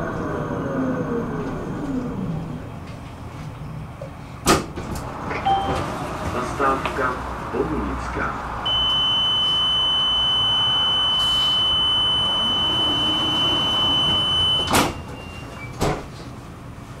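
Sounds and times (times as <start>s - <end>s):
high warning tone: 5.5s - 5.9s, 8.7s - 15.0s.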